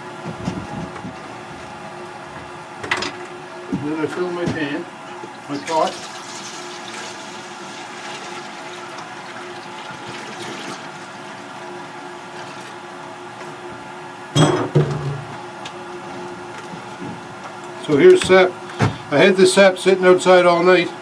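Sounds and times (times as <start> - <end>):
liquid pouring into metal bucket: 5.4 - 11.1.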